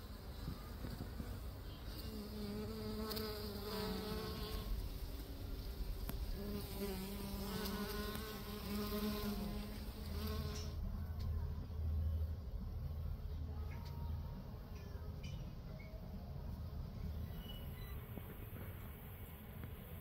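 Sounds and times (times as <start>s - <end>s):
flying insect buzzing: 0.1s - 10.8s.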